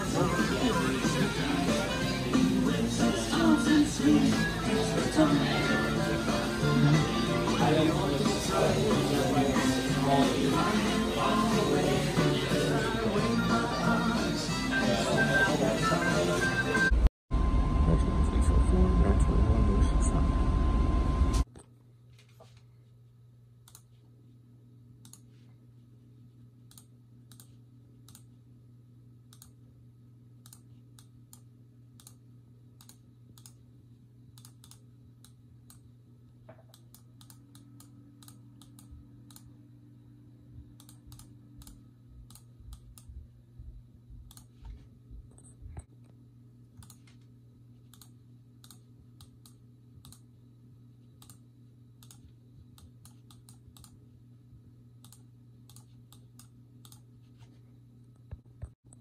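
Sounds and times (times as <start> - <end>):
steady low hum: 17.0 - 59.0
computer mouse clicking: 25.0 - 25.3, 26.7 - 28.3, 29.3 - 29.6, 30.4 - 32.2, 32.8 - 33.6, 34.4 - 35.8, 36.6 - 39.5, 40.8 - 43.1, 44.3 - 44.6, 46.8 - 47.2, 47.9 - 50.3, 51.2 - 51.4, 52.0 - 54.0, 55.0 - 57.1.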